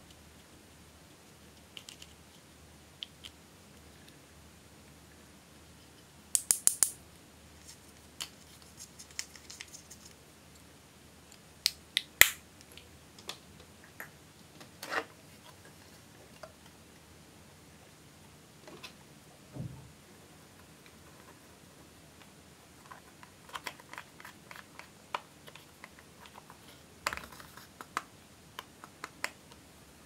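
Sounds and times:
dull thump: 19.5 - 19.9.

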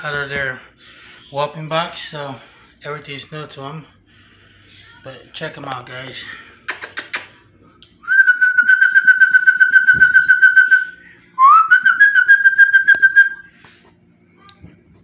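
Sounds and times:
long warbling whistles: 8.0 - 13.5.

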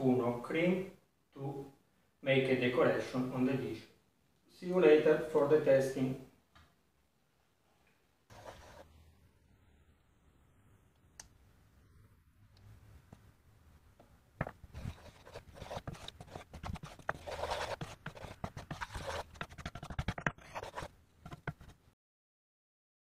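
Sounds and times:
sauce being stirred: 14.4 - 21.8
wooden spoon scraping a pan: 14.4 - 21.8.

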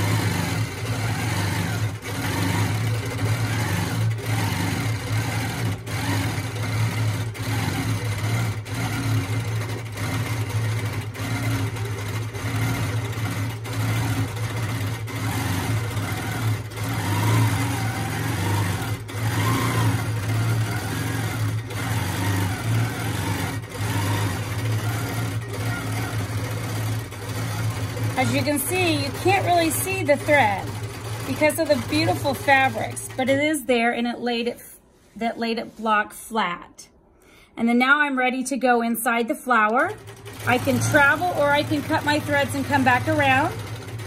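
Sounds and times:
quilting machine stitching: 0.0 - 36.2, 39.5 - 44.0.

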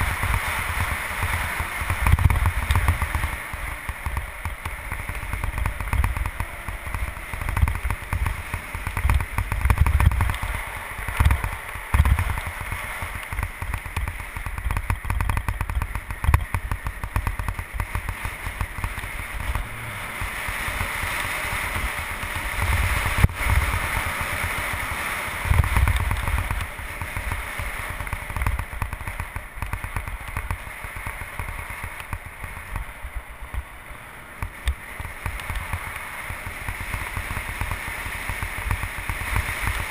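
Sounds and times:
tyres hissing on asphalt: 0.0 - 39.9
wind buffeting microphone: 0.0 - 39.9.

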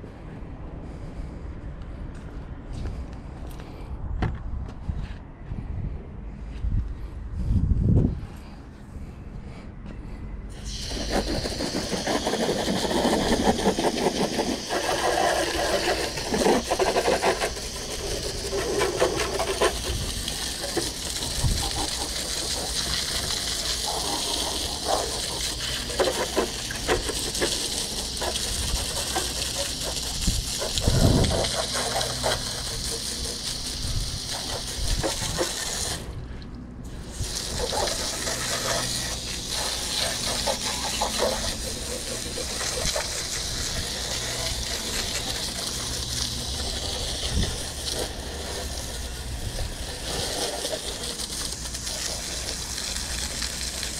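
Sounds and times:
hose nozzle spraying water: 10.5 - 36.2, 36.8 - 53.9
water splashing off mower: 10.5 - 36.2, 36.9 - 53.9.

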